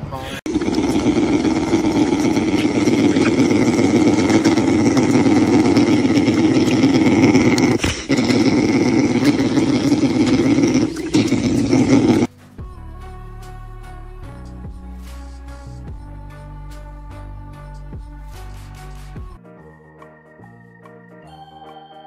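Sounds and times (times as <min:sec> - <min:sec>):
bear cub suckling hum: 0:00.5 - 0:12.3.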